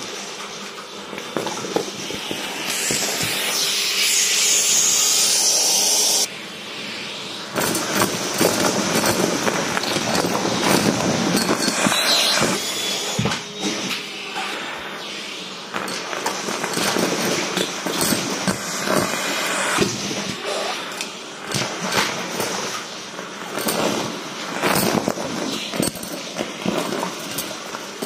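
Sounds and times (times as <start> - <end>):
vacuum cleaner air hiss: 1.0 - 28.0
debris rattling in vacuum wand: 7.5 - 13.9, 15.7 - 28.0.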